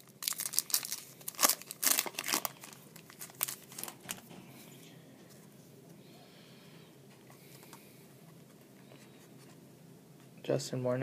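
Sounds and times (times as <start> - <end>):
foil wrapper crinkling: 0.0 - 4.2.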